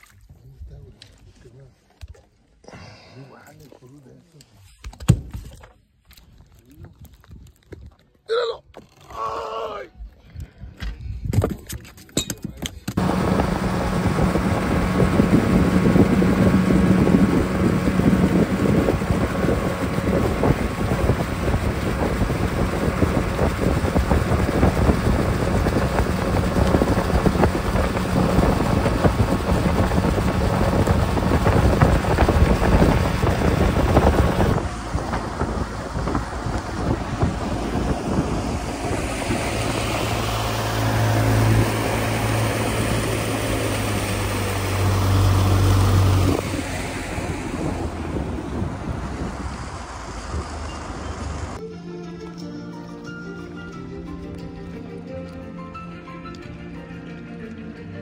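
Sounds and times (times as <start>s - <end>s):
boat motor running: 13.0s - 51.6s
water rushing from wake: 13.0s - 51.6s
wind buffeting microphone: 13.0s - 51.6s.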